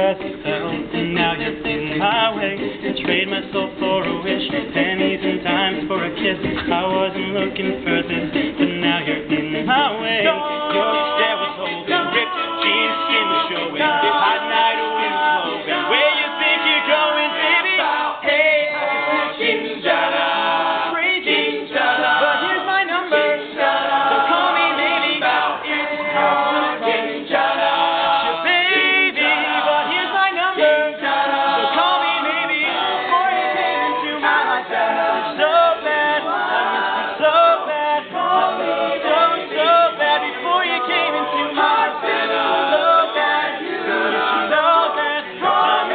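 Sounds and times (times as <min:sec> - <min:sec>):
lead male voice singing: 0:00.0 - 0:17.6
close-harmony backing vocals: 0:00.0 - 0:45.9.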